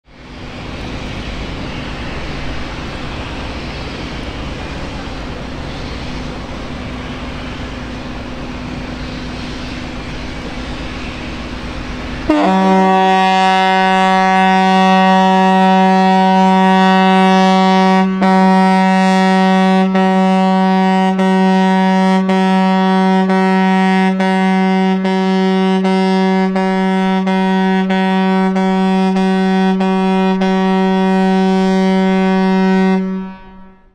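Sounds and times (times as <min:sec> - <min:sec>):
steady rushing background noise: 0:00.1 - 0:12.4
ship horn long blast: 0:07.7 - 0:33.9.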